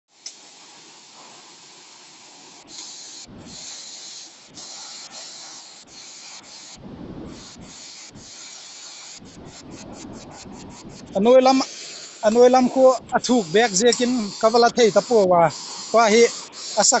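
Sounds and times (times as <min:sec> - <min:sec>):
wind rumble on microphone: 0:03.3 - 0:03.6, 0:06.8 - 0:08.3, 0:09.2 - 0:11.6.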